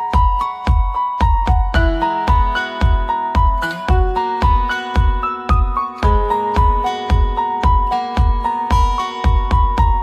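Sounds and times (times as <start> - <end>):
keyboard melody: 0.0 - 10.0
kick drum beat: 0.0 - 10.0.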